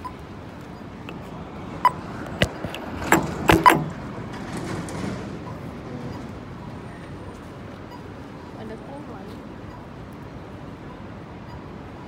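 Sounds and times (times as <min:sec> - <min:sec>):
crossing button locator beep: 0:00.0 - 0:02.1, 0:03.1 - 0:03.9, 0:07.8 - 0:12.0
street noise: 0:00.0 - 0:12.0
sharp knocks and clicks: 0:01.8 - 0:06.3.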